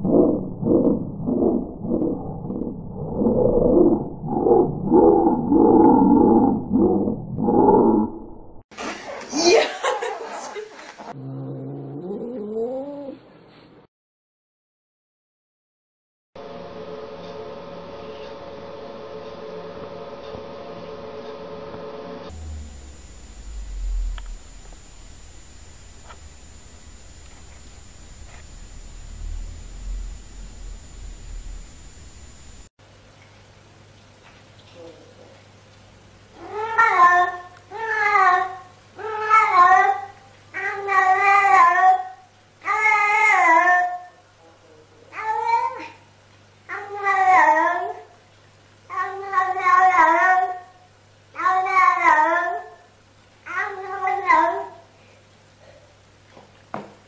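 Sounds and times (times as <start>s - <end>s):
steady hum with held tones: 16.4s - 34.0s
background hiss: 22.3s - 32.7s
faint ticks: 22.7s - 32.7s.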